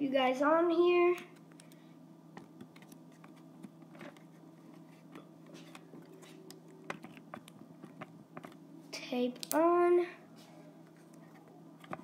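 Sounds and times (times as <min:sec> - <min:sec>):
low steady hum: 0:00.0 - 0:12.0
handling clicks and taps: 0:05.1 - 0:08.6.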